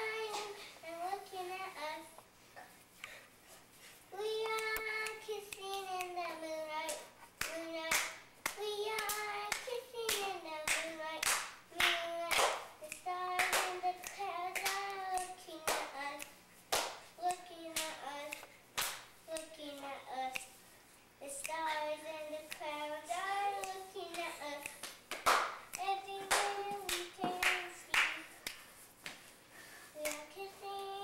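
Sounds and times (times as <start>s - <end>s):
hand claps: 4.4s - 20.6s, 21.4s - 21.9s, 22.5s - 29.3s, 30.0s - 30.4s.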